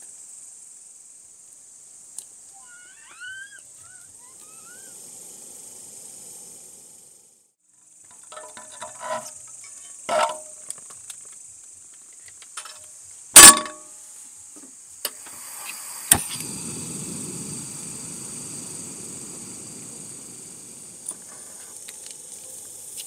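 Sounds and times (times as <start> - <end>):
steady high hiss: 0.0 - 23.0
food sizzling: 2.5 - 7.2, 15.1 - 23.0.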